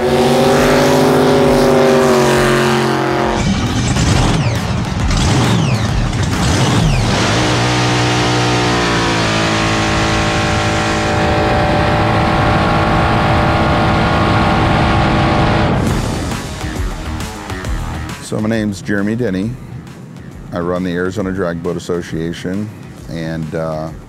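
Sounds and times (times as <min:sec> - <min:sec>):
boat engine at full throttle: 0:00.0 - 0:18.7.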